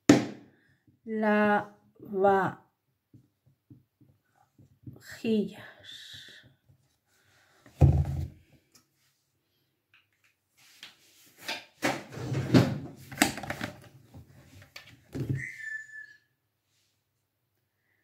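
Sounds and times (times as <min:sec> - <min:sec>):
plastic jug thudding on counter: 0:07.8 - 0:08.4
brief high squeak: 0:15.3 - 0:16.2.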